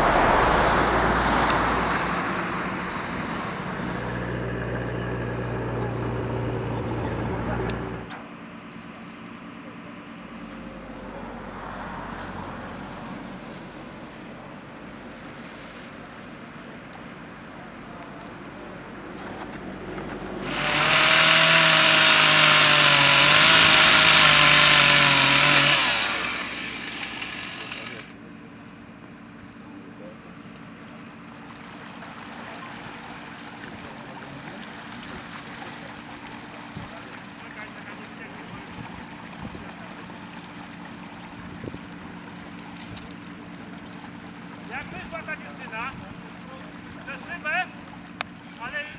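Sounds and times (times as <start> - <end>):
water sloshing and rushing: 0.0 - 8.1, 30.9 - 48.7
vehicle engine humming: 0.0 - 48.7.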